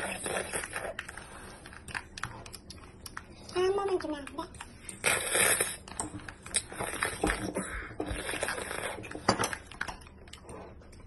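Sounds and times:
wet chewing: 0:00.0 - 0:11.0
child slurping: 0:05.0 - 0:05.9, 0:06.5 - 0:09.2.

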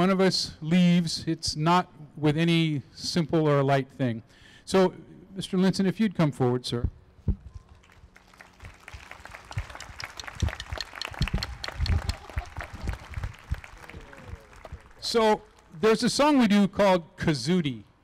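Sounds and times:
audience applauding: 0:07.7 - 0:15.7.

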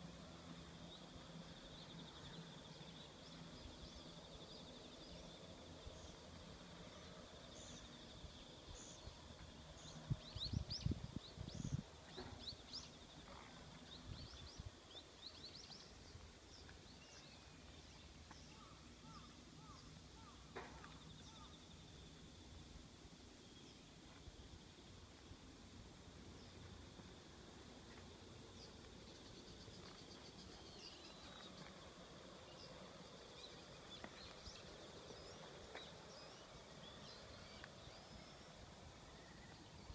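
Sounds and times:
small birds chirping: 0:27.9 - 0:39.9.

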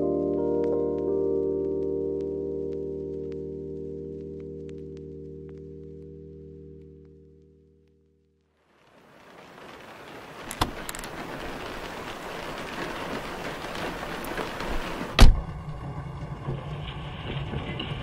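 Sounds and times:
low sustained music notes: 0:00.0 - 0:08.5, 0:11.1 - 0:18.0
steady hiss: 0:08.7 - 0:15.3.

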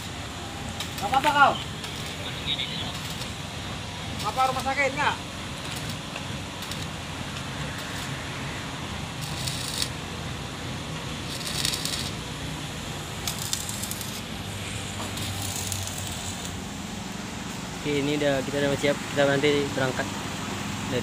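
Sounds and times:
arc welding crackling and hissing: 0:00.0 - 0:20.1.

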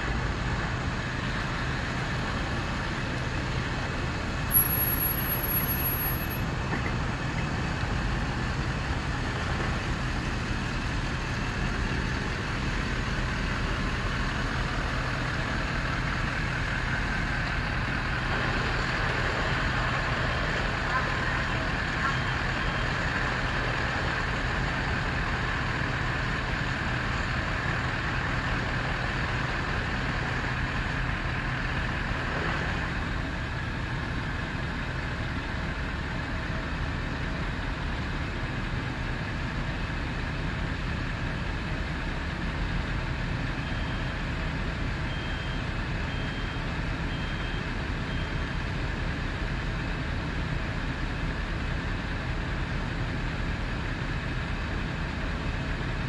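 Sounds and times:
fire engines rumbling: 0:00.0 - 0:56.0
reversing alarm beeps: 0:43.6 - 0:44.3, 0:45.0 - 0:48.6.

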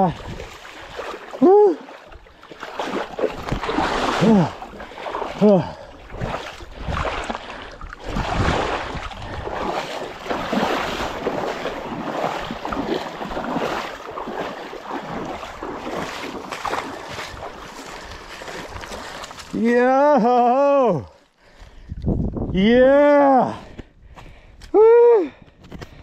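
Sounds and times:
wind buffeting microphone: 0:00.0 - 0:01.2, 0:02.8 - 0:19.4, 0:21.4 - 0:23.0
water washing over rocks: 0:00.0 - 0:20.0.

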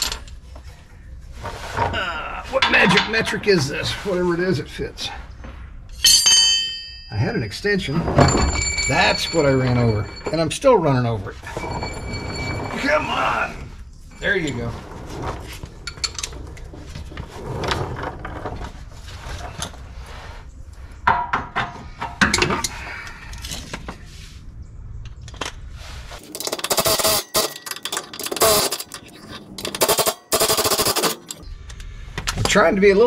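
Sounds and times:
hand tools clinking and scraping: 0:01.4 - 0:20.3, 0:21.6 - 0:24.2, 0:25.3 - 0:31.4
ratchet wrench clicking: 0:29.7 - 0:31.4.

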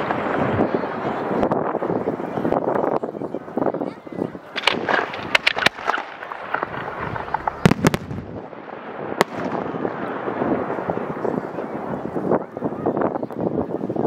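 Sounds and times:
firework crackling: 0:00.0 - 0:14.0
firework shells bursting: 0:04.5 - 0:10.9.

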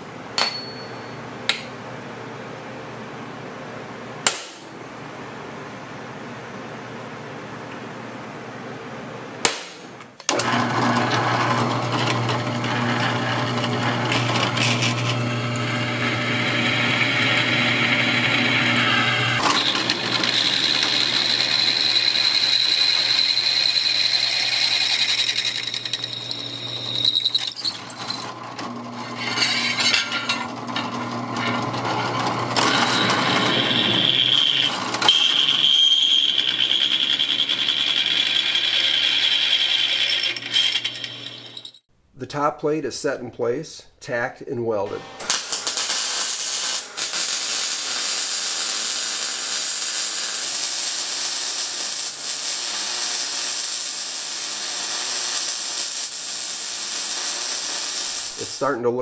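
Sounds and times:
center punch striking steel: 0:00.4 - 0:01.7, 0:04.2 - 0:05.0, 0:09.4 - 0:09.9
drill bit cutting steel: 0:10.3 - 0:41.7
drill press motor hum: 0:10.3 - 0:41.7.

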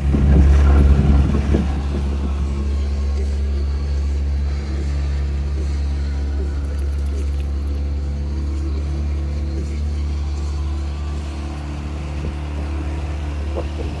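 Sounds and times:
rush of wind and water: 0:00.0 - 0:04.1, 0:11.1 - 0:14.0
outboard motor running: 0:00.0 - 0:14.0.

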